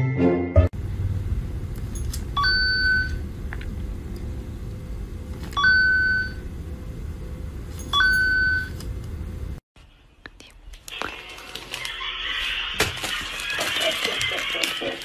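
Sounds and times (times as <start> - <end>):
steady low hum: 0.8 - 10.5.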